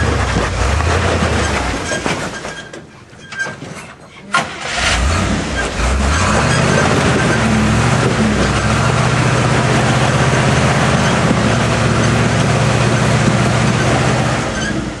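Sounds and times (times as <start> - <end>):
truck engine running steadily: 5.0 - 15.0.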